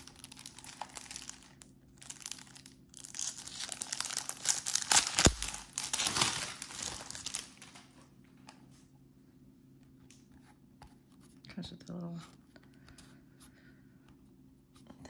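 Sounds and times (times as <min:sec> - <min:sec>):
plastic wrapper crinkling: 0:00.0 - 0:08.0.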